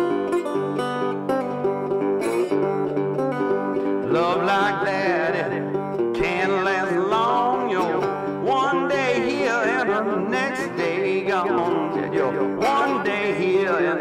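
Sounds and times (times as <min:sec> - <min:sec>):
banjo: 0:00.0 - 0:14.0
guitar: 0:00.0 - 0:14.0.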